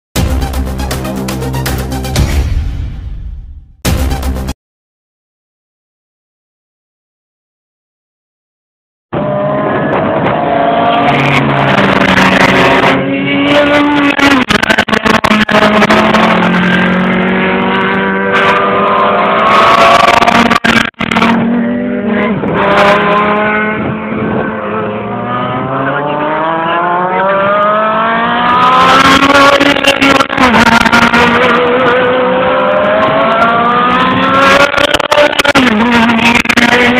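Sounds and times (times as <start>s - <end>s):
race car engines revving: 9.1s - 36.9s.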